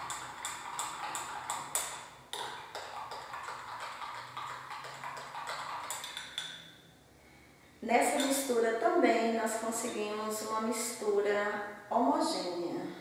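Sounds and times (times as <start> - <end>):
spoon clinking in a glass: 4.2 - 6.7.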